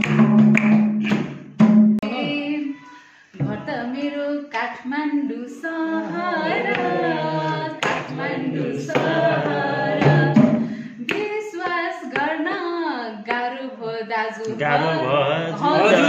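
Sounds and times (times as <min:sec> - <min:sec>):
person singing unaccompanied: 0:02.0 - 0:16.0
person breathing: 0:02.8 - 0:03.4, 0:10.6 - 0:11.0.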